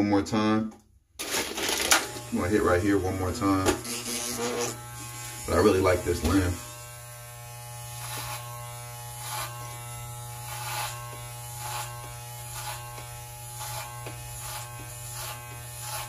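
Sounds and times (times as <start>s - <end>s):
electric hair clippers buzzing: 1.2s - 16.0s
clippers swishing through hair: 3.8s - 5.4s, 7.8s - 16.0s.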